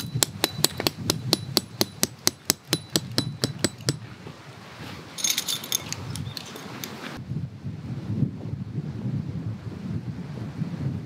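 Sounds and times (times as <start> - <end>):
hammer striking metal tent peg: 0.0 - 4.0
metal clinking: 5.2 - 6.7.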